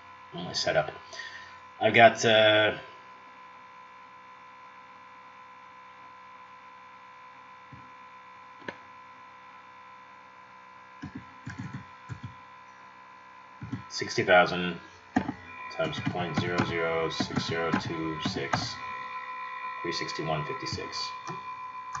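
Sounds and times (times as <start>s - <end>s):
electrical hum with tones: 0.0s - 22.0s
keyboard key taps: 11.0s - 12.4s, 13.6s - 13.9s, 15.2s - 15.4s, 16.0s - 18.8s.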